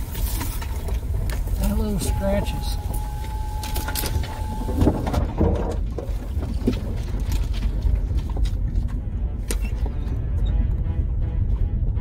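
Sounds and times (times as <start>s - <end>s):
branches scraping along vehicle: 0.0s - 8.9s
vehicle rumble from inside cabin: 0.0s - 12.0s
knocks and rattles from bumps: 4.4s - 8.9s.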